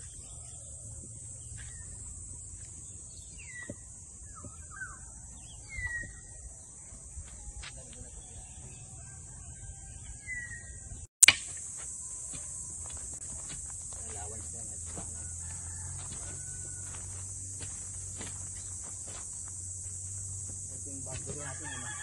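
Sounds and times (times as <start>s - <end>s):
insects chirring: 0.0s - 22.0s
sharp click: 11.2s - 11.6s.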